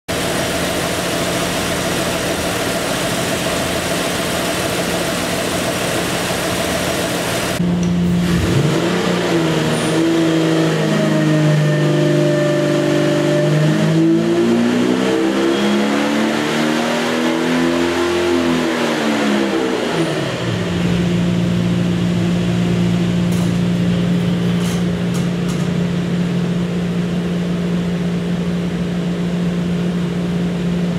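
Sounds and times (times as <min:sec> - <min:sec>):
engine revving on dynamometer: 0:08.2 - 0:22.9.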